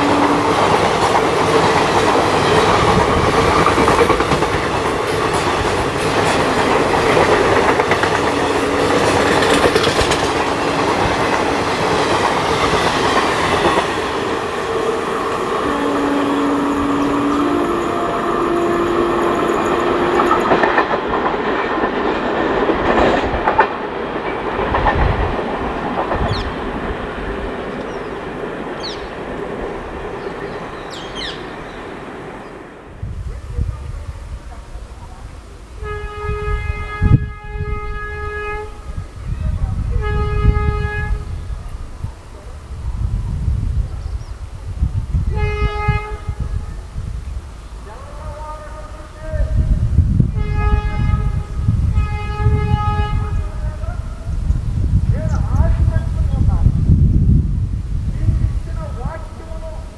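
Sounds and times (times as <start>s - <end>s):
distant train rumble: 0.0s - 59.9s
train wheels clattering over rail joints: 0.1s - 14.3s, 19.8s - 31.0s.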